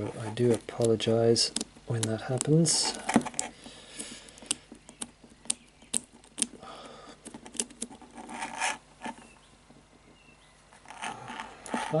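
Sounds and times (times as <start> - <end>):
fingers scraping and rubbing lock: 0.0 - 6.6, 7.2 - 9.4, 10.7 - 12.0.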